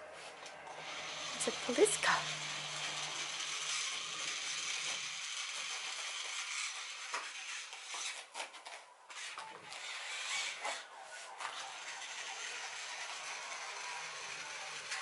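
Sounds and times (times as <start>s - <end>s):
plastic toy car clicking: 2.9s - 10.8s, 11.4s - 15.0s.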